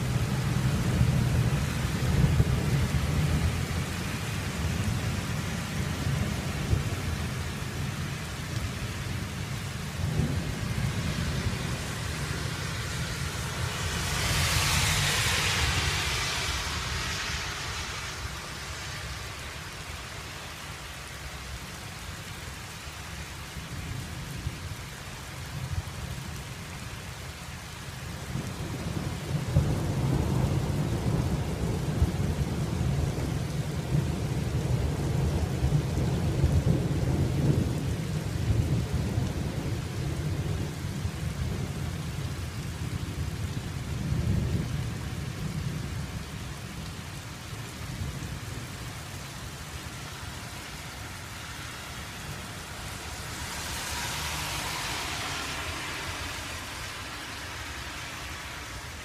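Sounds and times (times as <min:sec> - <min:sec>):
thunder rumbling: 0:00.0 - 0:20.3, 0:47.7 - 0:59.0
rain hissing: 0:00.0 - 0:59.0.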